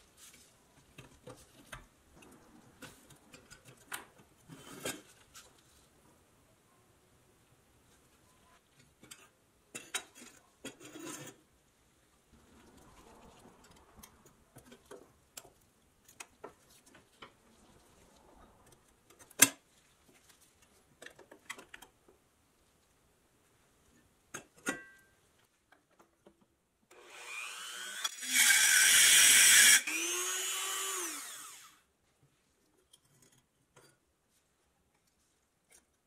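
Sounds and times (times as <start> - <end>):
metallic clicks and scrapes: 8.7 - 11.5, 12.4 - 19.7.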